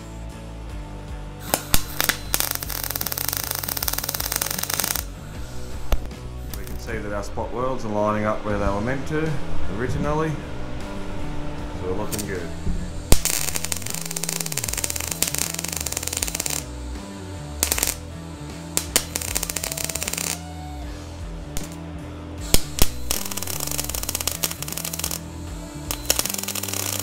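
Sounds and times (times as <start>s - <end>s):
background music: 0.0s - 27.0s
welder crackling and hissing: 1.4s - 7.3s, 11.8s - 21.8s, 22.4s - 27.0s.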